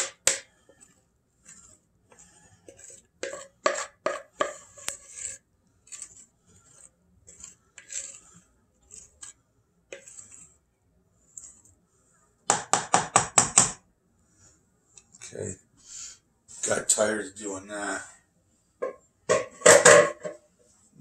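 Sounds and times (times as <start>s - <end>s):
utensil scraping glass bowl: 0.0s - 10.6s, 11.2s - 11.7s.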